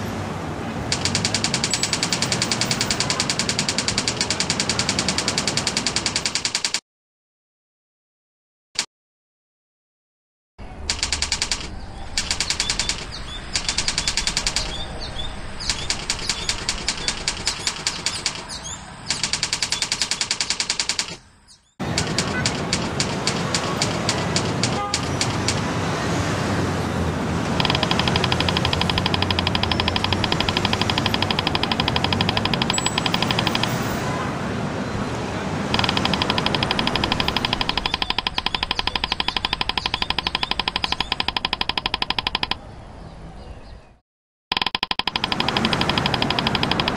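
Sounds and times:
typewriter keys clattering: 0:00.9 - 0:06.8, 0:10.9 - 0:14.8, 0:15.7 - 0:21.2, 0:21.9 - 0:25.6, 0:27.5 - 0:33.8, 0:35.8 - 0:42.6, 0:44.5 - 0:46.9.

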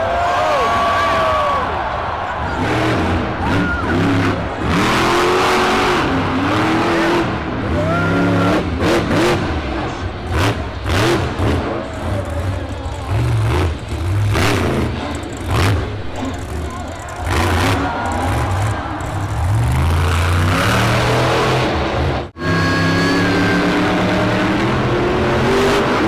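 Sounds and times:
truck engine revving hard: 0:02.4 - 0:26.0.

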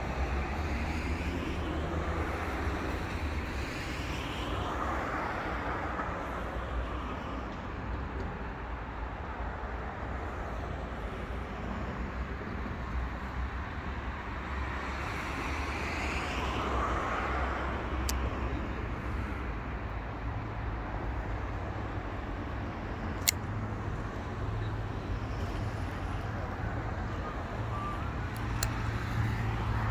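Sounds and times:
sharp clicks: 0:23.2 - 0:23.5, 0:28.3 - 0:29.1.

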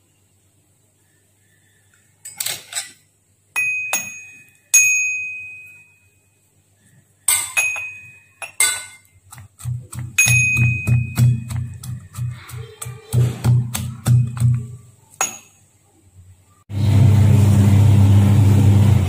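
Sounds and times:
steel bowls clinking: 0:03.6 - 0:06.0, 0:07.3 - 0:15.6
metal pestle pounding in steel cup: 0:07.3 - 0:15.5.

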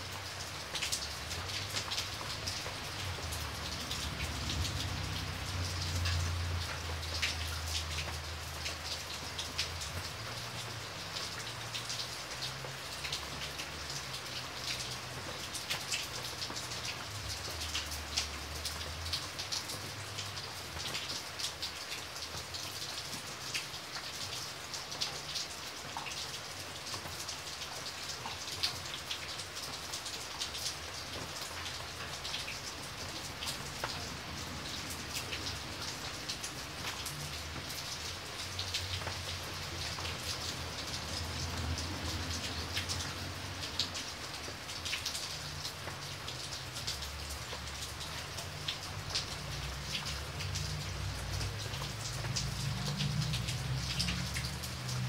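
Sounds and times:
rain on hard surfaces: 0:00.0 - 0:55.0.

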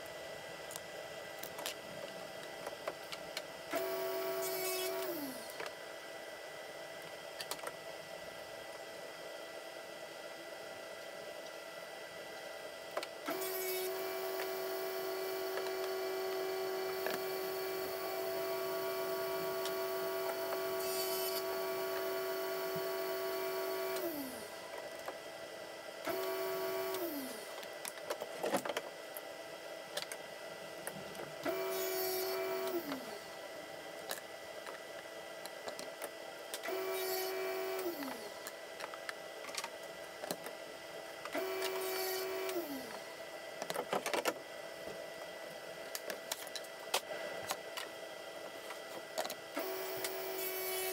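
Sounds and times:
table saw whining: 0:03.7 - 0:05.5, 0:13.3 - 0:24.5, 0:31.4 - 0:33.3, 0:36.7 - 0:38.3, 0:41.4 - 0:43.1, 0:49.6 - 0:50.9.

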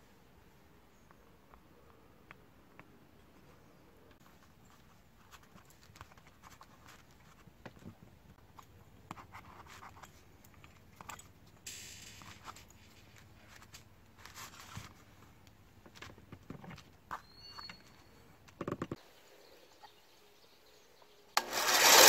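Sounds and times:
short scraping hiss: 0:11.6 - 0:13.0.

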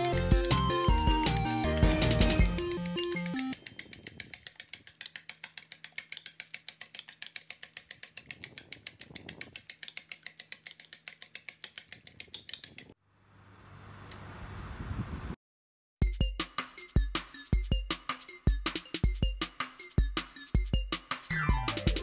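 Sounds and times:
fork beating eggs on plate: 0:03.6 - 0:12.9.

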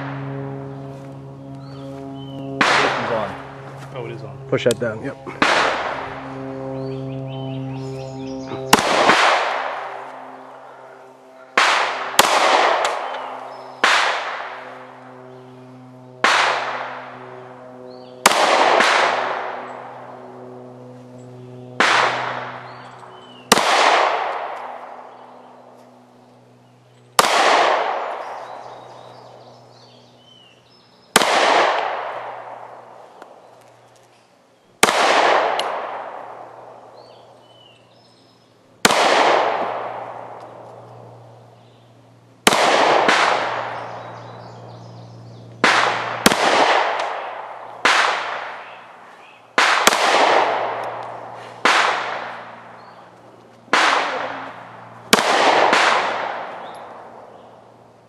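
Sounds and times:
handgun shots with echo: 0:02.6 - 0:03.2.

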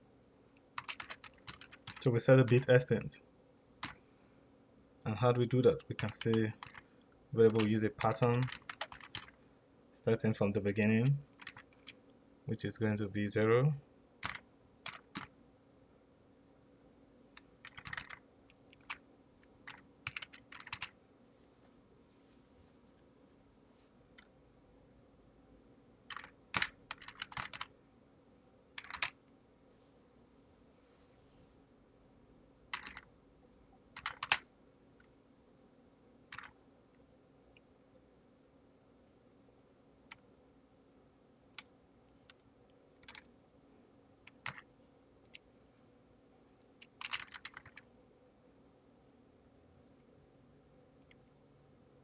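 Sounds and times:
faint steady hum: 0:00.0 - 0:52.0
computer keyboard typing: 0:00.7 - 0:02.8, 0:03.8 - 0:04.0, 0:05.5 - 0:09.4, 0:11.0 - 0:12.0, 0:14.2 - 0:15.3, 0:17.3 - 0:19.0, 0:19.6 - 0:21.0, 0:26.1 - 0:27.7, 0:28.8 - 0:29.2, 0:32.7 - 0:33.1, 0:33.9 - 0:34.4, 0:36.3 - 0:36.6, 0:43.0 - 0:43.3, 0:44.3 - 0:44.7, 0:46.8 - 0:47.9.

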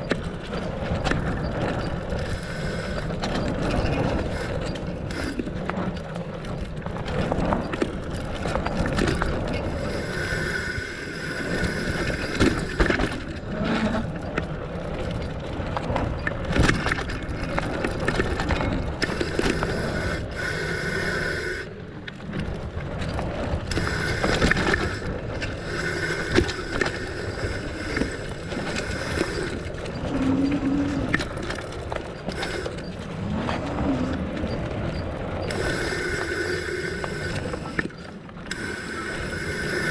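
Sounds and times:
bike tyres rumbling over dirt: 0:00.0 - 0:10.6, 0:11.2 - 0:21.1, 0:21.8 - 0:38.5
freewheel ratchet buzzing: 0:34.9 - 0:39.9.

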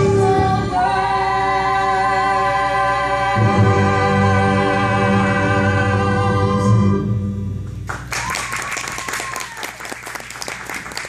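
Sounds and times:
audience applause: 0:07.9 - 0:11.0.

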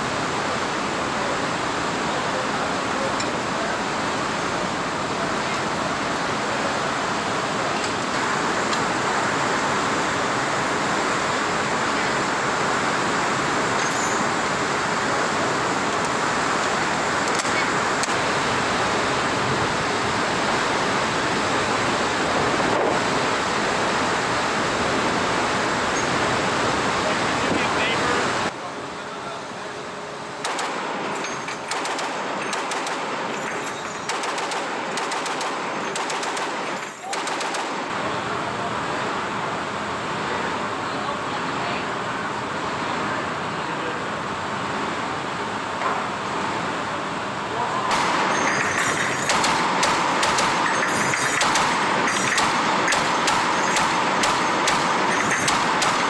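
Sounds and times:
constant rushing noise: 0:00.0 - 0:56.0
heavy machine gun bursts: 0:30.4 - 0:37.9, 0:47.9 - 0:56.0.

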